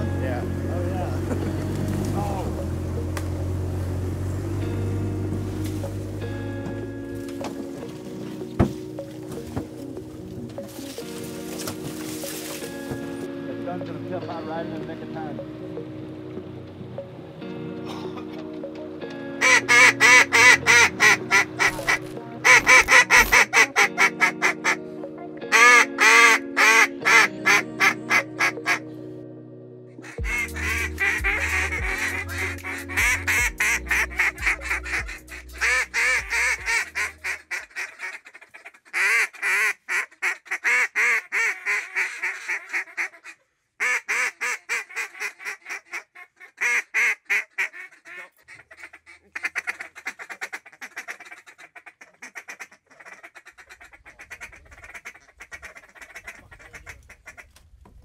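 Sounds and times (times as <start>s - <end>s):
low music bass: 0.0s - 10.7s, 12.8s - 25.6s, 27.1s - 37.5s
duck calls quacking: 19.4s - 24.8s, 25.5s - 28.8s, 30.0s - 57.5s.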